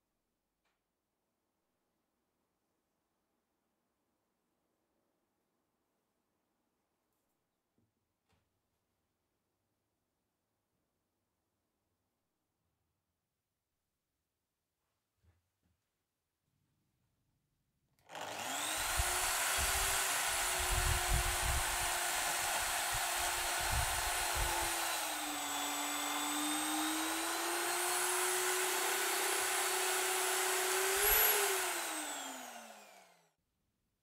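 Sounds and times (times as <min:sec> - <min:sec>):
electric drill boring wood: 0:18.0 - 0:33.3
drill bit knocking: 0:18.1 - 0:33.1.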